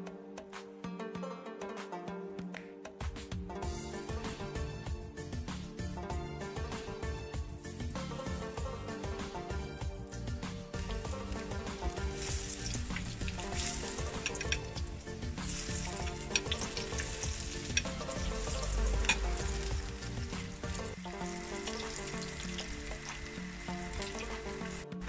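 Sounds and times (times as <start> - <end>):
fritters sizzling in oil: 10.8 - 24.8
oil popping and crackling: 10.8 - 24.9.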